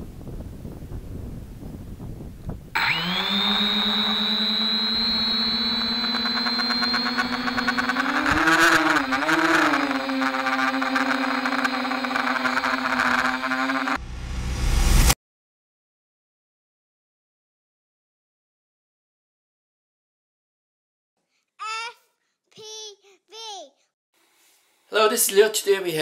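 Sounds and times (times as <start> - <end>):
quadcopter propellers whining: 2.8 - 14.0.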